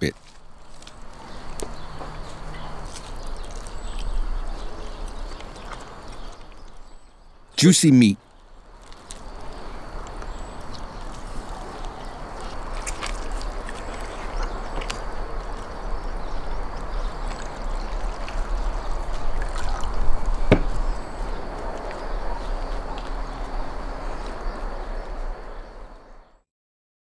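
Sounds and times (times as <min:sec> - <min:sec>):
roasted meat tearing and crackling: 0:00.2 - 0:06.9, 0:08.3 - 0:24.4
knock on wooden board: 0:20.5 - 0:20.8.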